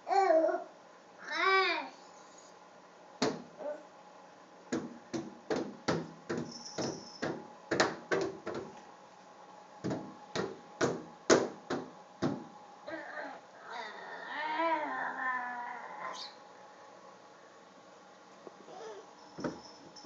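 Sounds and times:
hands slapping a glass door: 3.2s - 3.5s, 4.7s - 8.8s, 9.8s - 12.5s.

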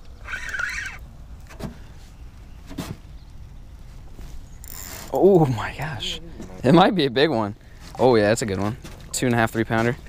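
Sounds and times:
fishing reel whirring: 0.2s - 1.0s.

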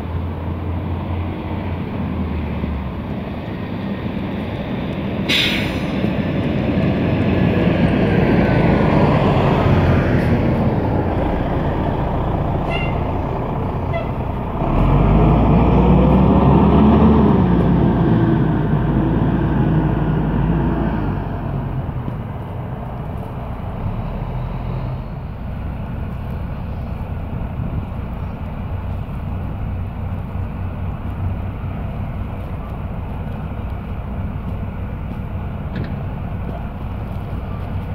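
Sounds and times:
distant jet engine roar: 0.0s - 37.9s
short sharp hiss: 5.3s - 6.0s.

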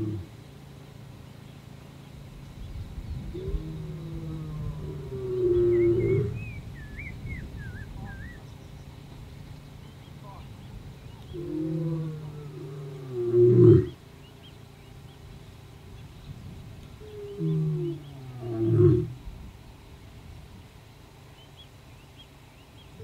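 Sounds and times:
lion roaring: 0.0s - 0.3s, 3.3s - 6.4s, 11.2s - 14.0s, 17.0s - 19.2s.

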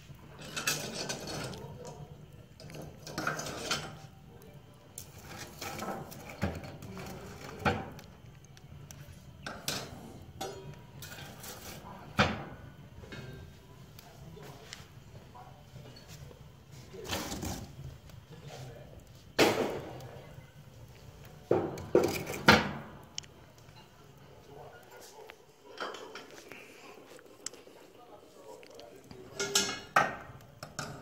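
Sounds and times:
tools scraping metal grate: 0.4s - 1.9s, 2.6s - 4.1s, 5.0s - 8.1s, 9.4s - 11.9s, 17.0s - 17.7s, 21.7s - 22.6s, 29.2s - 30.0s.

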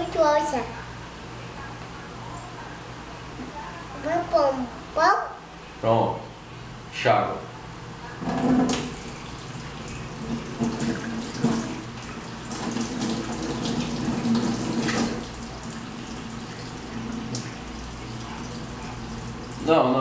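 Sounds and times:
tap water running into sink: 8.2s - 19.7s.

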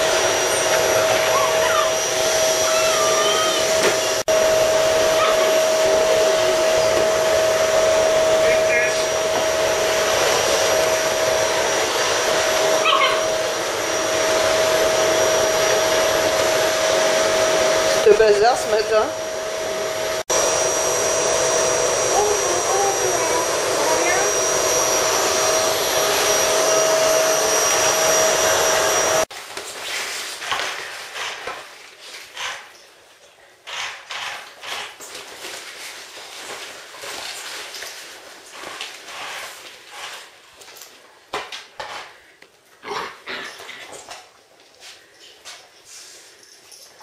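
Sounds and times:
vacuum cleaner running: 0.0s - 29.4s
puppy whimpering: 1.0s - 2.0s, 2.6s - 3.7s, 5.1s - 5.6s, 12.8s - 13.3s
puppies scuffling on tiled floor: 29.3s - 33.2s, 34.5s - 42.8s, 43.4s - 47.0s.

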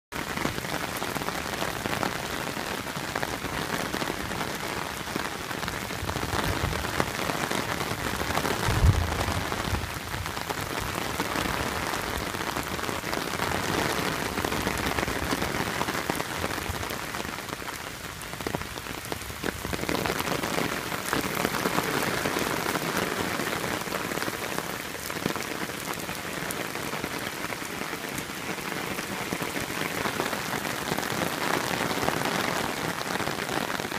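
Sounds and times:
rain splashing on pavement: 0.1s - 33.9s.

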